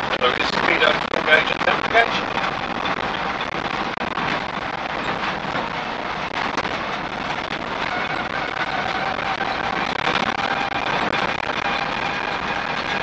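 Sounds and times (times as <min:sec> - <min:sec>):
engine and road noise: 0:00.0 - 0:13.0.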